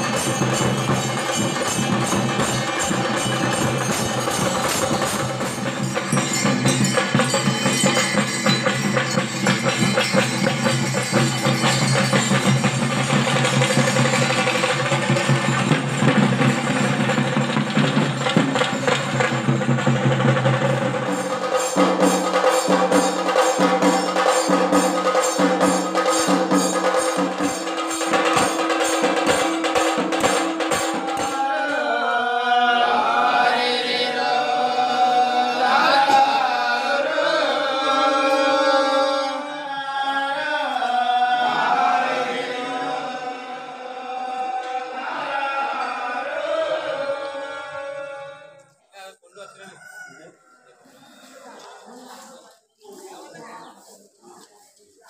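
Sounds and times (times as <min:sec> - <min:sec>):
steady drum beat: 0:00.0 - 0:32.0
person singing chant-like melody: 0:29.2 - 0:48.9.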